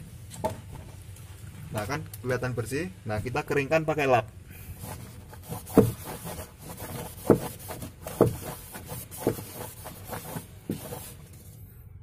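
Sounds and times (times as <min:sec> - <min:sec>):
cloth rubbing plastic wall: 0:04.8 - 0:11.4.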